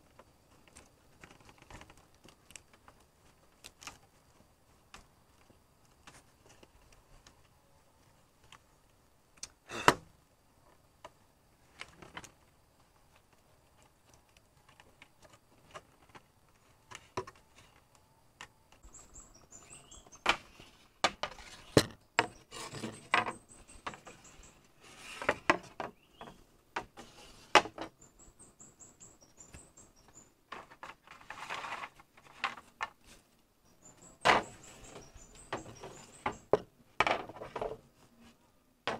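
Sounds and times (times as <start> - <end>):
rustle: 0.0 - 38.9
bird chirping: 16.7 - 20.9, 21.6 - 25.1, 25.9 - 26.5, 27.9 - 30.4, 33.6 - 36.6.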